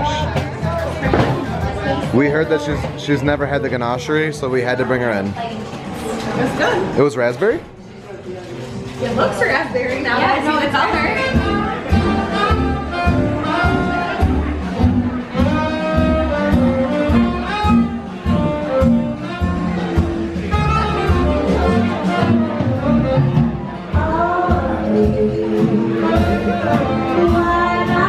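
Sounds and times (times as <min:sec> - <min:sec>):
jazz band steady beat: 0:00.0 - 0:03.4, 0:10.3 - 0:28.0
saxophone: 0:10.8 - 0:28.0
woman singing: 0:23.8 - 0:28.0.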